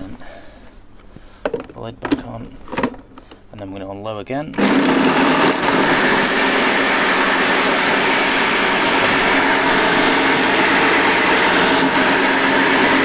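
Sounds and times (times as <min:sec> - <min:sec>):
blender running: 0:04.6 - 0:13.0.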